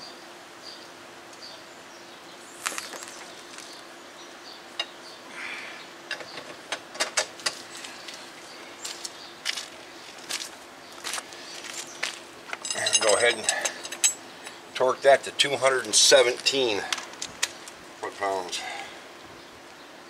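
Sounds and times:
birds chirping: 0:00.0 - 0:06.9, 0:07.5 - 0:20.0
steady low hum: 0:00.0 - 0:20.0
metal hand tools clinking: 0:12.5 - 0:14.2.

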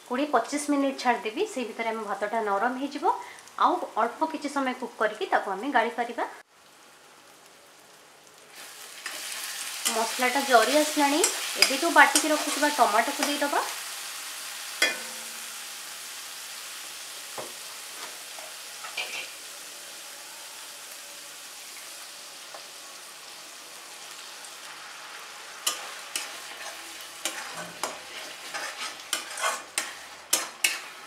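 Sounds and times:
masala sizzling in a pan: 0:00.0 - 0:31.0
metal spatula scraping a pan: 0:09.0 - 0:13.5, 0:14.8 - 0:15.5, 0:17.9 - 0:19.4, 0:25.5 - 0:31.0.

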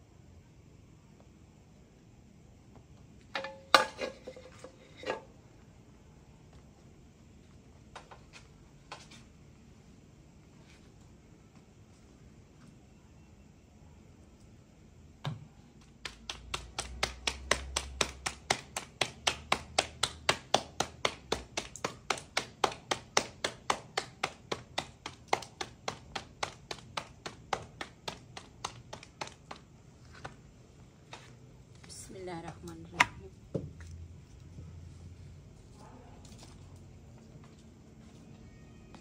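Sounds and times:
dough slapped between palms: 0:15.3 - 0:30.4.

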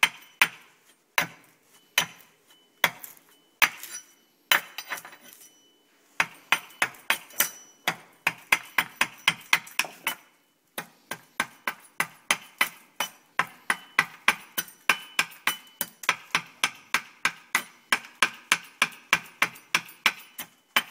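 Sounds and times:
hatchet chopping wood: 0:00.0 - 0:04.8, 0:06.2 - 0:20.9.

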